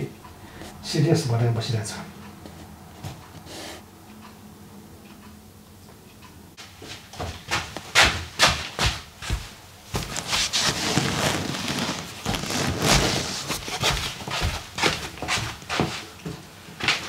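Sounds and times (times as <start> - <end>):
slippered footsteps on floor: 2.4 - 3.5, 6.6 - 17.0
clothes rustling against leather sofa: 6.8 - 16.2.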